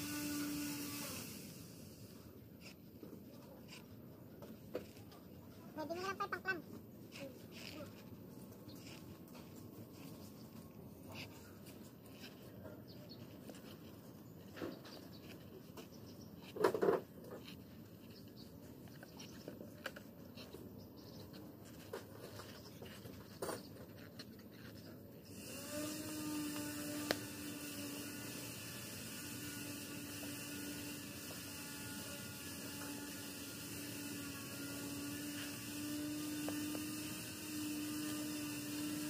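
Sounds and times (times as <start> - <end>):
steady hum with hiss: 0.0 - 39.0
pipe knocking and scraping on concrete: 16.5 - 17.7.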